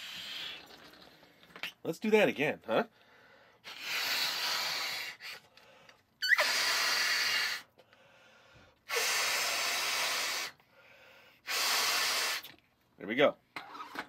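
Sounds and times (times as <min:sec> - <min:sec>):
breaths blowing up a balloon: 0:00.0 - 0:01.7, 0:03.5 - 0:12.6.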